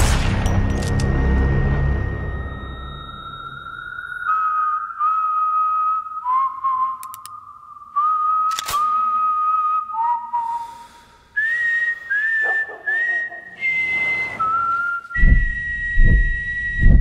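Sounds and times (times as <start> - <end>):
person whistling a slow melody: 3.3 - 17.0
sharp click: 7.0 - 7.4, 8.5 - 9.0
deep low thuds: 15.2 - 17.0.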